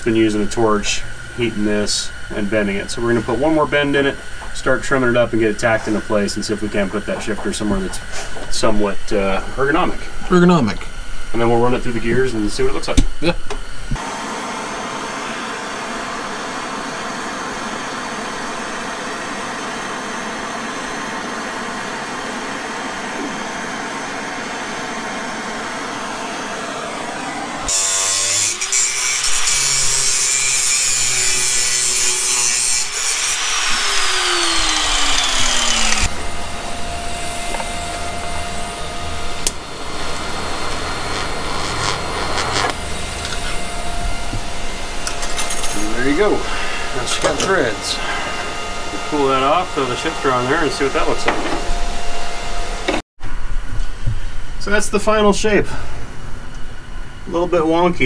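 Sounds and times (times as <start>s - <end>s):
gas torch hissing: 0.0s - 36.1s, 37.1s - 51.6s
electric welder buzzing: 0.0s - 53.0s
angle grinder cutting metal: 14.0s - 53.0s.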